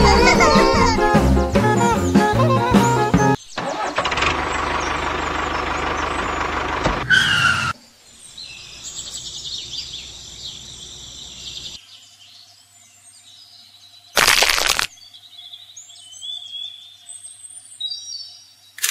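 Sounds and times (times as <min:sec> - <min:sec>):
birds chirping: 0:04.4 - 0:11.8
brief squeal: 0:07.0 - 0:07.7.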